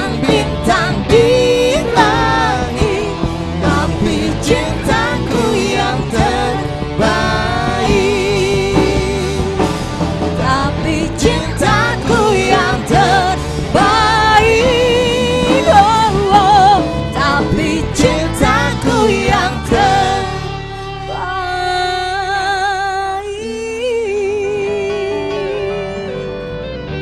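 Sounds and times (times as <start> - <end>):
woman singing with vibrato: 0.0 - 9.8, 10.4 - 26.3
live band playing pop ballad: 0.0 - 27.0.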